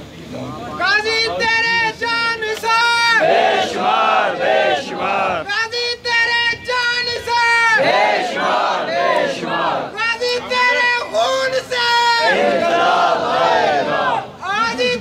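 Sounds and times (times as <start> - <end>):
man shouting slogans: 0.8 - 3.4, 4.9 - 8.2, 9.8 - 12.8
crowd of men shouting back: 6.2 - 15.0.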